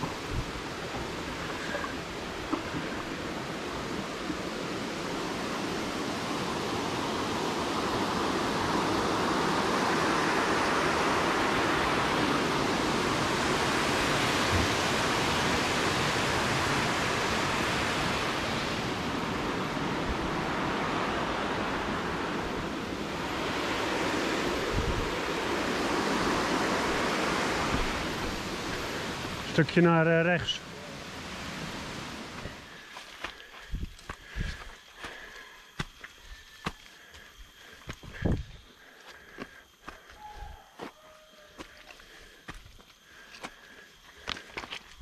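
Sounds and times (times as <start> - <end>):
water rushing over a weir: 0.0 - 32.7.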